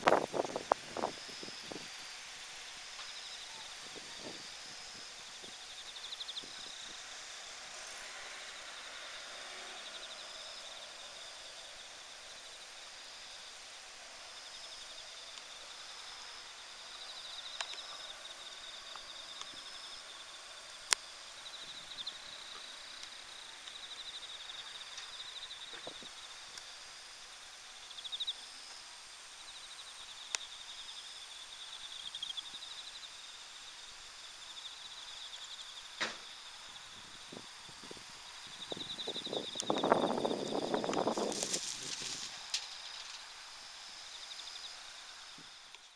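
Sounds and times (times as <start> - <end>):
crickets chirping chorus: 0.0 - 45.9.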